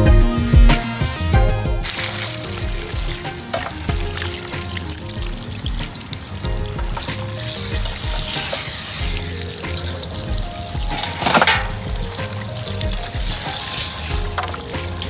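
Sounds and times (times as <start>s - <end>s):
hose water spraying and splashing: 1.8s - 15.0s.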